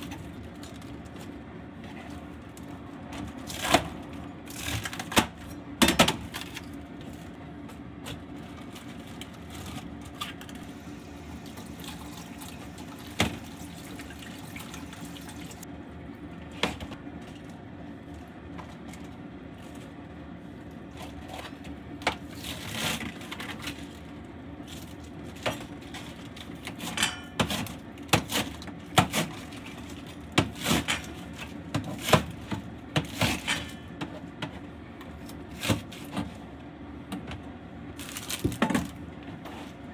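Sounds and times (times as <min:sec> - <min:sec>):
water running and sloshing: 0:11.2 - 0:15.6.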